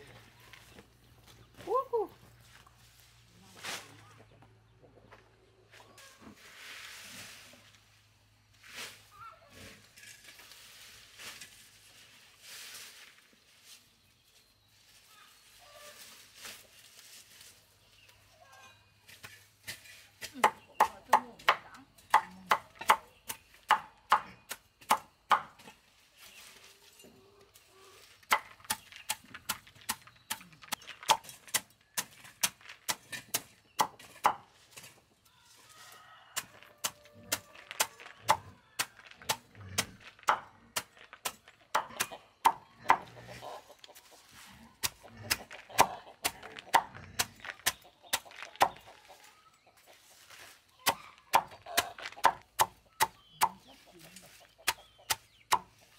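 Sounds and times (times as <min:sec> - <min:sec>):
machete chopping on wooden board: 0:20.3 - 0:25.6.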